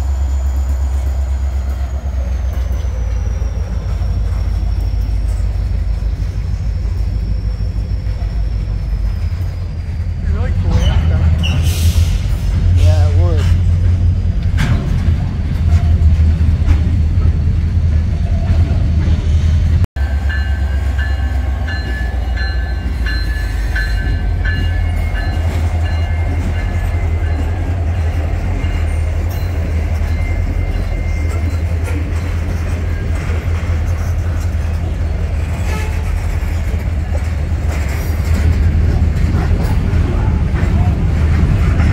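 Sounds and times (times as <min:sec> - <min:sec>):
locomotive bell ringing: 0:00.0 - 0:10.8, 0:20.0 - 0:35.9
diesel locomotive engine rumble: 0:00.0 - 0:41.9
freight train rumbling past: 0:00.0 - 0:41.9.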